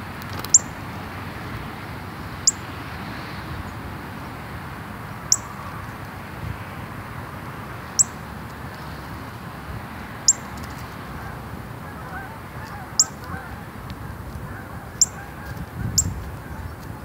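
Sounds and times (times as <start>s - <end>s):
bird chip calls: 0.4s - 0.8s, 2.4s - 2.6s, 5.3s - 5.6s, 7.9s - 8.2s, 10.3s - 10.8s, 12.0s - 13.5s, 14.5s - 16.8s.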